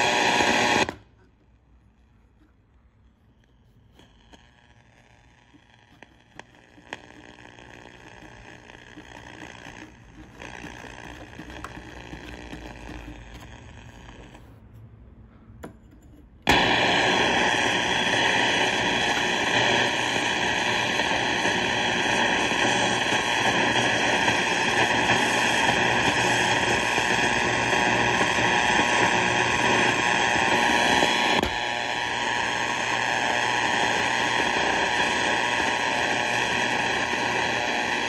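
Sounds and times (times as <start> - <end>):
loud radio static: 0.0 - 1.0, 4.0 - 14.5, 16.5 - 38.0
radio control clicks: 4.0 - 14.4.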